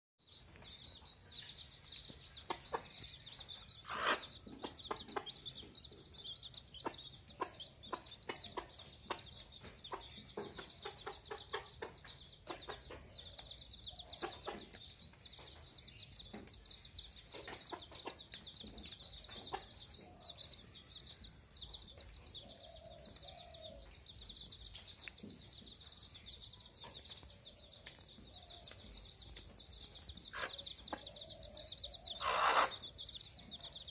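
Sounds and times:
baby chicks peeping: 0.2s - 33.9s
hen clucking softly: 3.8s - 6.1s, 30.3s - 32.9s.

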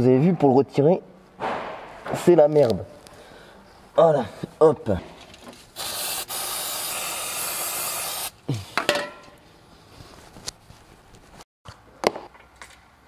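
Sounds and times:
spray hissing: 5.8s - 8.4s.

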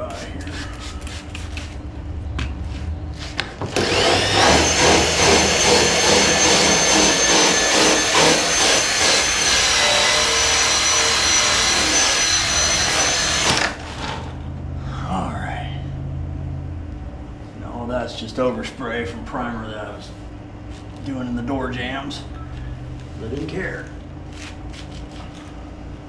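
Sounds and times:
power buffer whining: 3.6s - 14.3s.

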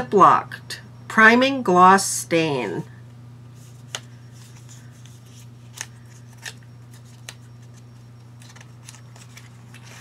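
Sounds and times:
steady low hum: 0.0s - 10.0s
package clicks and handling: 3.9s - 10.0s.

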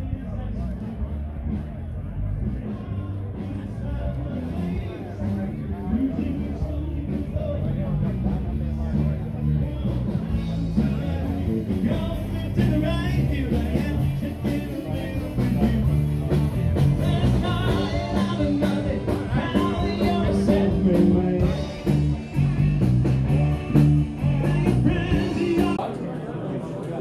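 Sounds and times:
bass line: 0.0s - 25.8s
guitar: 0.0s - 25.9s
person singing: 9.4s - 22.6s, 23.7s - 25.8s.

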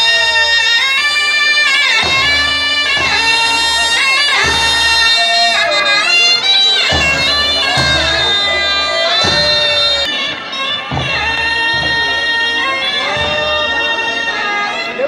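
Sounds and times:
double-reed pipes playing melody: 0.0s - 15.0s.

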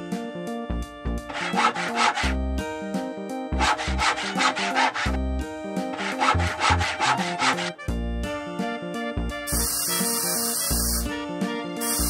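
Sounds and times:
background music with bass line: 0.0s - 9.8s, 10.7s - 12.0s
hand saw sawing: 1.3s - 2.4s, 3.6s - 5.2s, 5.8s - 7.9s.

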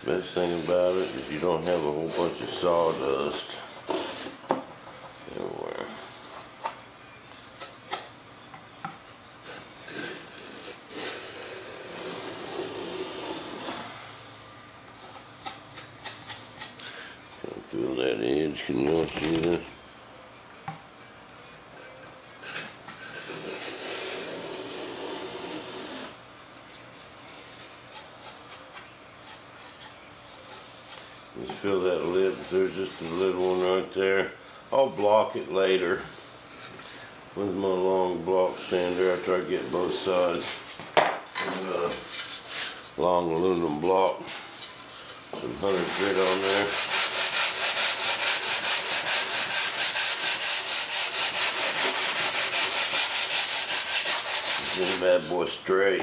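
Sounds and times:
hand plane shaving wood: 0.2s - 4.4s, 45.6s - 55.2s
sanding block rasping on wood: 0.2s - 4.4s, 22.4s - 26.2s, 31.8s - 33.8s, 38.5s - 40.6s, 45.6s - 55.3s.

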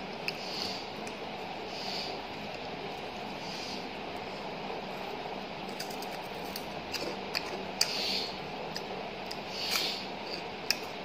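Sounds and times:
steady background noise: 0.0s - 11.0s
crispy food crunching when chewed: 4.1s - 8.0s.

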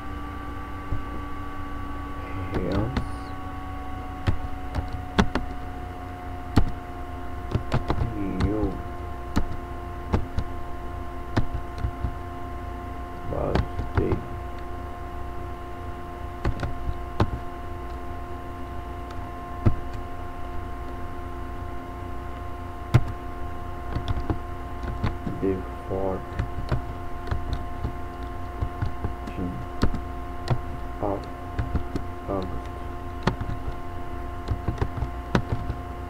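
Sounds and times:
steady hum: 0.0s - 36.0s
typing on keyboard: 23.9s - 25.2s.

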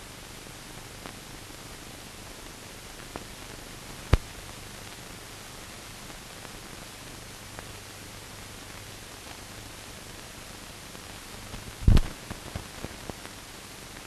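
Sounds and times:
film transfer hiss: 0.0s - 14.0s
sharp loud pop: 11.8s - 12.2s.

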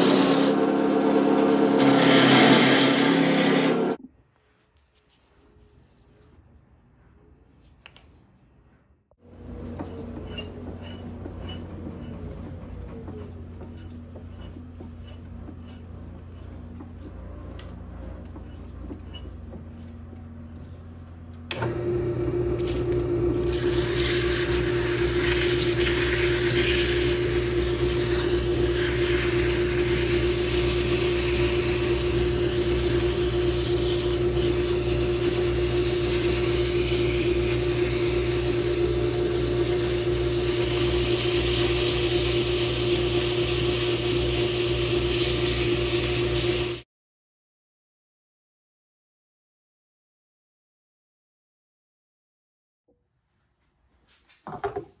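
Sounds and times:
sandpaper rasping on wood: 9.7s - 21.3s, 23.5s - 46.7s
drill press motor humming: 21.4s - 46.8s.

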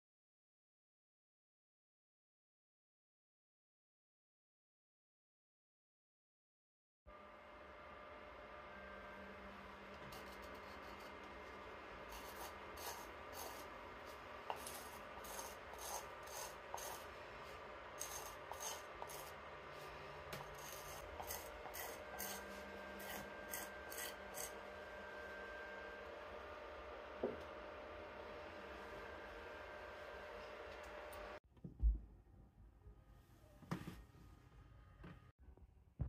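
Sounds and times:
hand rasping clay cup: 10.1s - 19.4s, 20.3s - 24.6s.

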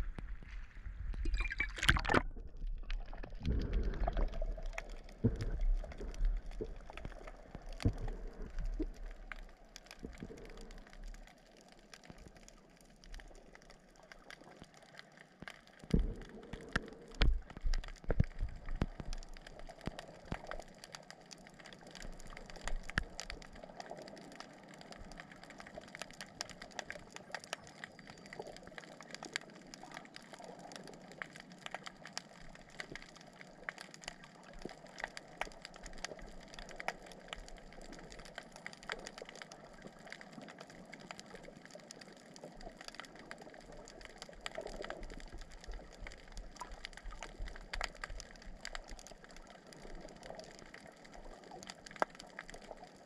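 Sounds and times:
low underwater rumbling: 0.0s - 53.0s
underwater gurgling: 0.0s - 53.0s
camera splashing into water: 1.2s - 2.4s
faint clicks: 2.8s - 53.0s.

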